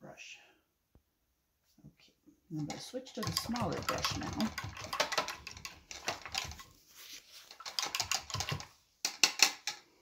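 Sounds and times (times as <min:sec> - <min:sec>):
paper towel crinkling: 0:06.6 - 0:07.7.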